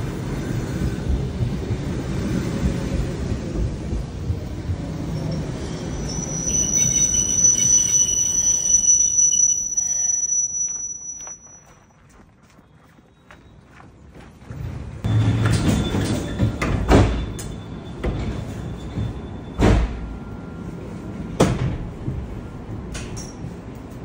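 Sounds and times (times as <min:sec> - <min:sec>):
electric train rumbling: 0:00.0 - 0:24.0
high-pitched squeal: 0:05.1 - 0:11.8.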